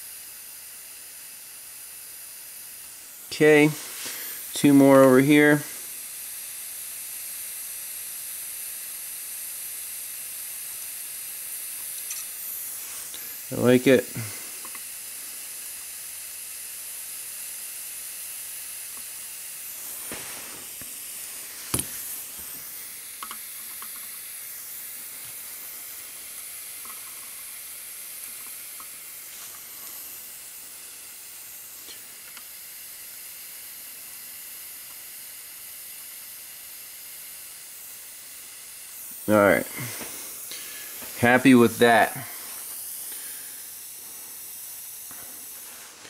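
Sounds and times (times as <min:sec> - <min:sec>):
soldering torch flame hissing: 0:00.0 - 0:46.0
sharp click: 0:12.0 - 0:12.3.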